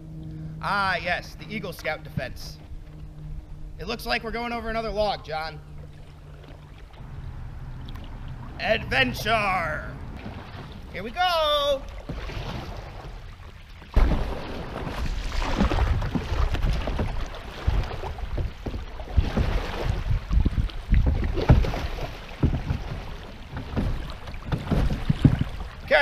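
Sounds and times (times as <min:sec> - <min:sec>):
river water rushing and splashing: 0:05.8 - 0:26.0
knocks and scrapes against hull: 0:11.9 - 0:25.9.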